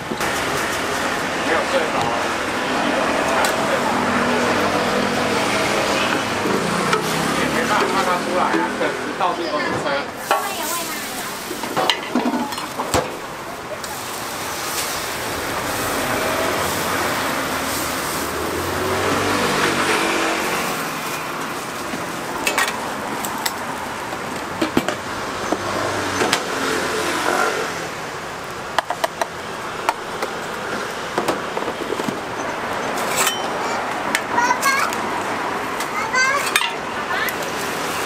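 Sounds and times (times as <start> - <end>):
vehicle passing: 0.3 - 11.8, 12.6 - 28.5
batter frying on griddle: 13.6 - 24.4.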